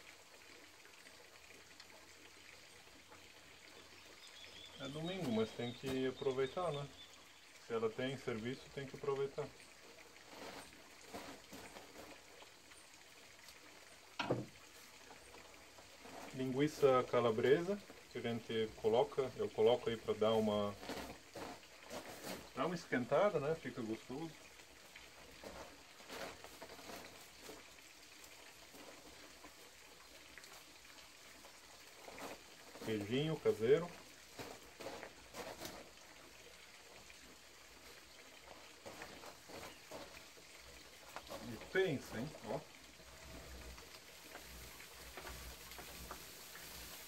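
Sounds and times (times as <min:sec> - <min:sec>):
meat sizzling on charcoal grill: 0:10.3 - 0:12.2, 0:15.9 - 0:23.8, 0:31.5 - 0:36.0, 0:41.0 - 0:47.0.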